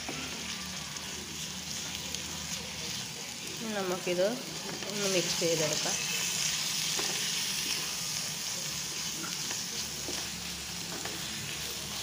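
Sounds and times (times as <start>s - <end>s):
chicken sizzling in a frying pan: 0.0s - 12.0s.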